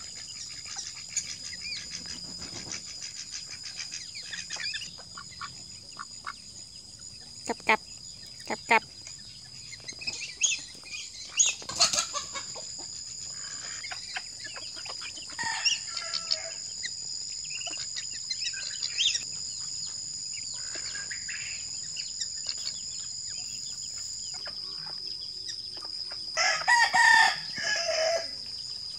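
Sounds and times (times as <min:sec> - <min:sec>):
poultry clucking and calling: 0:00.0 - 0:06.6, 0:07.4 - 0:07.8, 0:08.4 - 0:16.7, 0:17.5 - 0:28.4.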